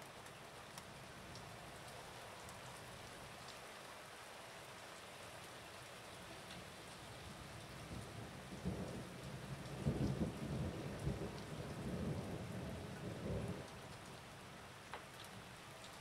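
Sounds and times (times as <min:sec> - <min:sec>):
rain falling: 0:00.0 - 0:16.0
thunder rumbling: 0:08.0 - 0:13.6.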